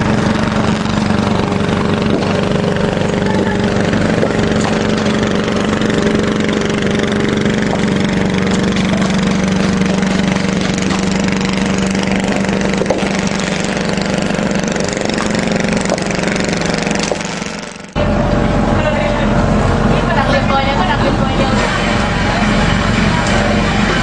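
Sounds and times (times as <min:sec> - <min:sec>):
faint engine knocks: 0:00.0 - 0:18.0
engine idling: 0:00.0 - 0:24.0.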